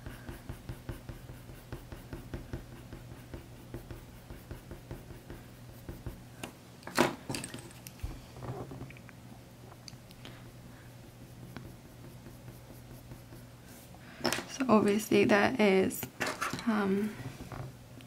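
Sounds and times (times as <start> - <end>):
pencil strokes on paper: 0.0 - 6.3, 10.7 - 13.9.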